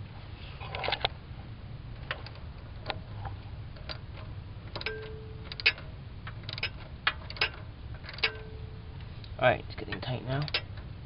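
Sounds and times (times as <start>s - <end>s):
hand ratchet clicking: 3.8s - 8.6s, 10.0s - 10.9s.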